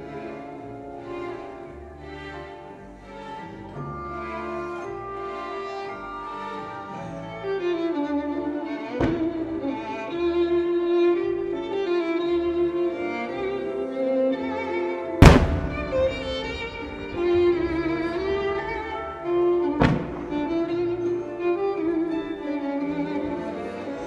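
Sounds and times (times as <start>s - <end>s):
slow music with held notes: 0.0s - 24.0s
sharp thump of shell launch: 15.2s - 16.9s
firework shell bursting: 15.2s - 19.0s, 19.7s - 20.6s.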